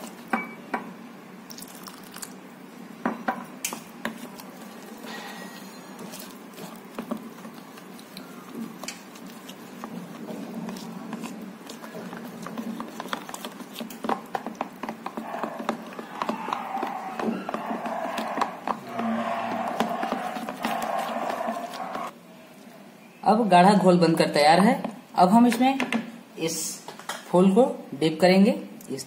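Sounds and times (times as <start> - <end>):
spoon beating batter in bowl: 3.2 - 22.1.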